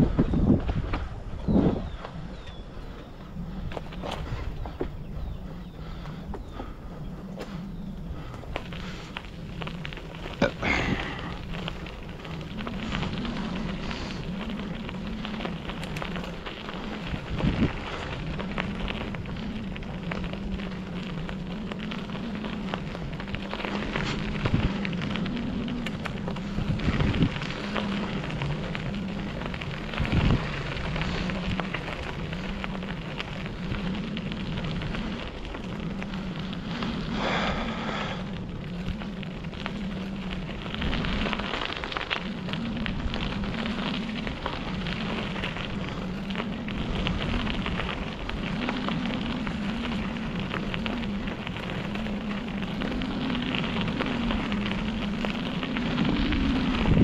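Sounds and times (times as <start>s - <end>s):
bicycle tyres crunching grit: 0.0s - 57.0s
low wavering hum: 0.0s - 57.0s
bike knocking over bumps: 3.6s - 6.7s.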